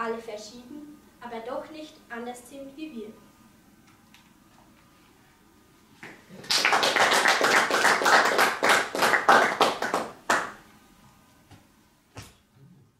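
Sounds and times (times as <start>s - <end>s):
audience applauding: 6.4s - 10.6s.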